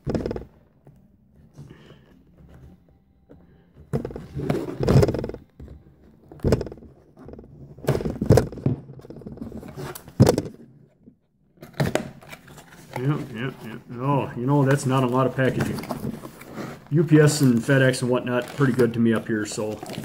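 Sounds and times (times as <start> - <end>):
cardboard scraping and rubbing: 4.0 - 5.6, 6.4 - 10.5, 14.5 - 20.0.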